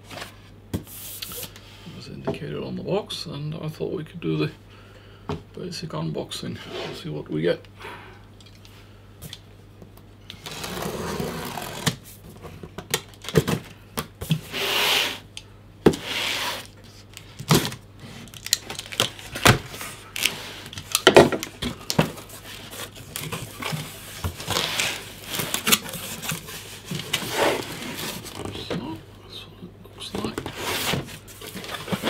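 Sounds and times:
tape tearing off cardboard: 10.4s - 12.0s.

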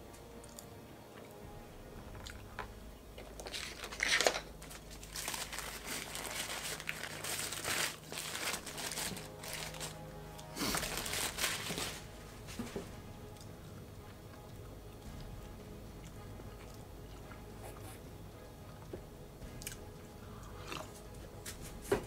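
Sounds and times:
background music: 0.0s - 22.0s
paper wrapper crinkling: 3.2s - 12.8s.

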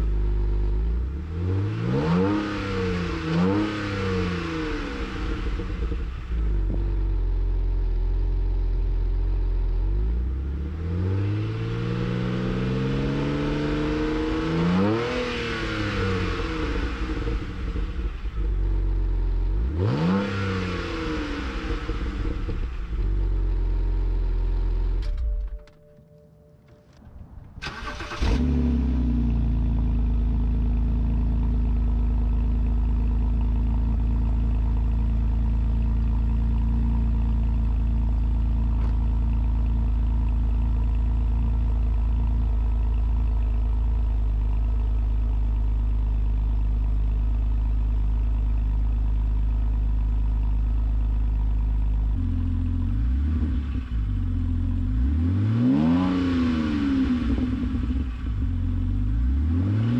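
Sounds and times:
car engine revving: 0.0s - 7.7s, 9.9s - 25.0s, 27.6s - 31.5s, 52.1s - 59.9s
car engine starting and idling: 0.0s - 59.9s.

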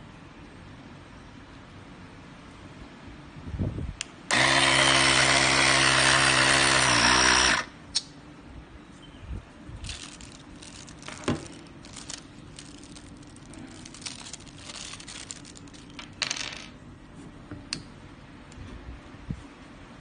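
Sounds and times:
plastic bag crinkling: 9.8s - 16.4s.

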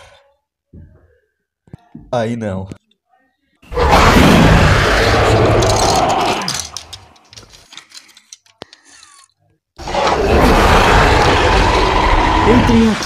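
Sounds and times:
rough dinosaur roar: 3.7s - 6.7s, 9.8s - 13.0s.

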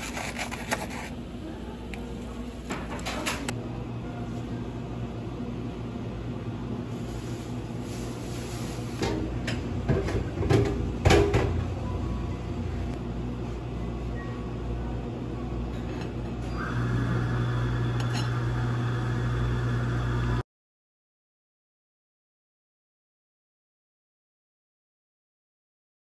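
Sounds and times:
low machine hum: 0.0s - 20.4s.

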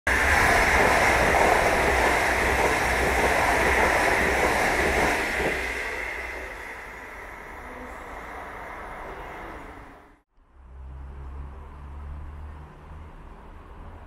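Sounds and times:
high-speed train passing: 0.1s - 14.0s.

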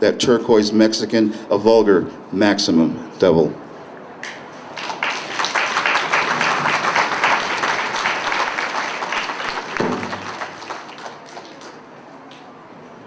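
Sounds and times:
audience applauding: 4.7s - 11.9s.

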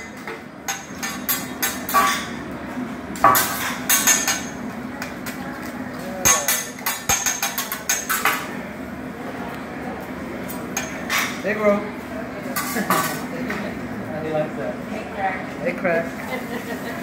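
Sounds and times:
metal spatulas clacking on griddle: 0.0s - 2.4s, 6.2s - 8.4s.

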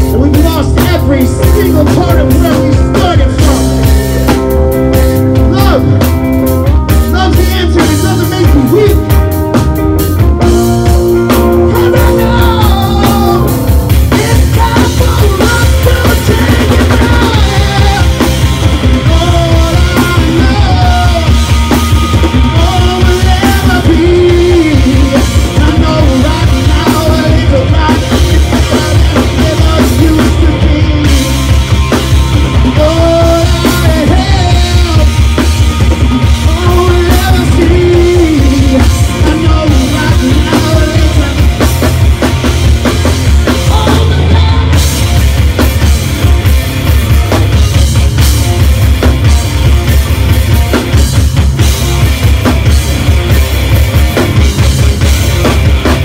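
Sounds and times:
man singing: 0.0s - 9.6s, 11.3s - 31.7s, 32.3s - 42.0s, 42.8s - 45.2s
bass guitar: 0.0s - 56.0s
drum kit: 0.0s - 56.0s
electric guitar: 0.0s - 56.0s.

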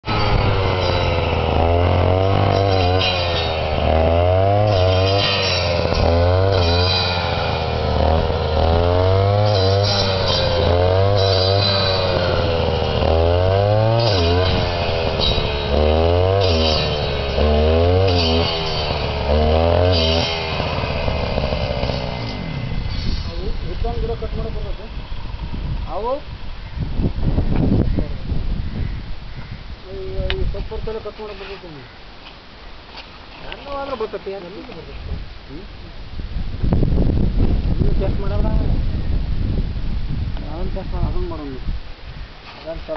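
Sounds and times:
small petrol engine revving: 0.0s - 26.0s
cutter biting through stems: 0.1s - 23.3s.

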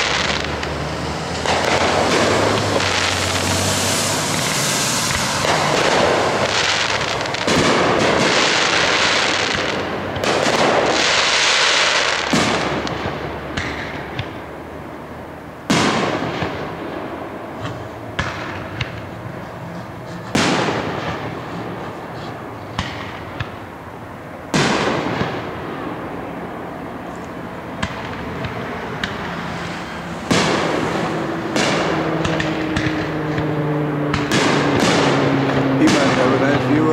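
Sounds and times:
fireworks booming: 0.0s - 36.9s
small firework pops: 1.4s - 3.6s, 4.2s - 11.2s, 12.2s - 14.4s, 17.6s - 19.2s, 20.3s - 23.6s, 27.1s - 29.4s, 31.5s - 35.2s.

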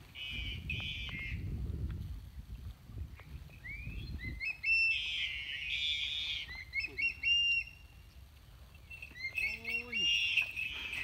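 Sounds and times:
birds chirping: 3.5s - 11.0s
buzzy bird trill: 8.8s - 11.0s.

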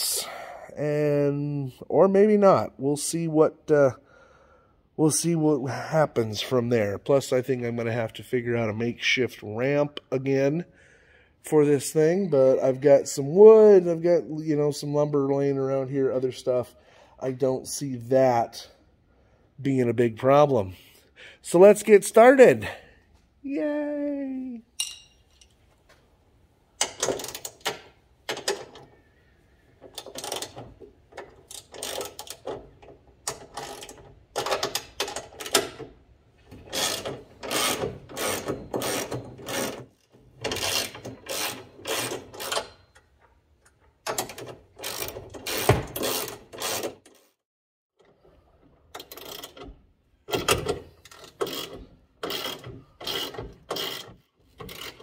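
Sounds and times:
ratchet wrench clicking: 30.0s - 30.6s, 31.5s - 32.5s, 44.8s - 47.2s, 49.0s - 49.6s, 51.0s - 55.0s.

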